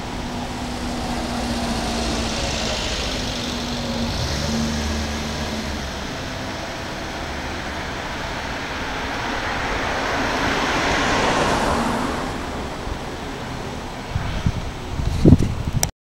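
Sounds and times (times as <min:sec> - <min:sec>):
vehicle rushing past: 0:00.0 - 0:15.0.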